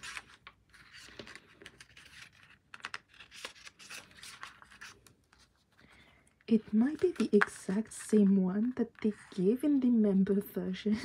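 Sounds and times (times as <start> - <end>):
fingers tapping and scraping pages: 0.0 - 5.5, 6.5 - 9.8
paper pages rustling: 0.0 - 9.5.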